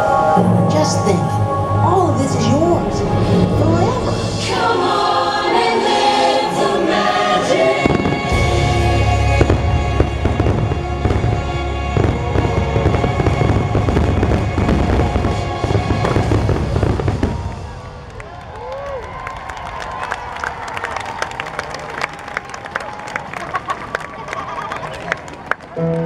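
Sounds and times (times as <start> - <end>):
deep low rumble: 0.0 - 5.2, 8.0 - 20.5
choral music: 0.0 - 18.5
fireworks bursting and crackling: 7.5 - 20.7.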